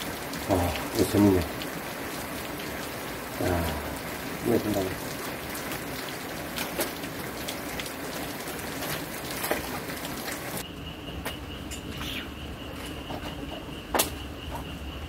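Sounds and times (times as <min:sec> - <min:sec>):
raindrops tapping: 0:00.0 - 0:10.6
rain hiss: 0:00.0 - 0:12.9
insect high-pitched trill: 0:10.6 - 0:15.0.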